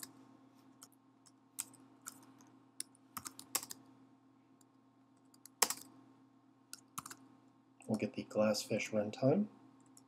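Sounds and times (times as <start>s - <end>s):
faint low hum: 0.0s - 10.0s
typing on keyboard: 1.6s - 3.8s, 5.2s - 5.9s, 6.7s - 7.2s.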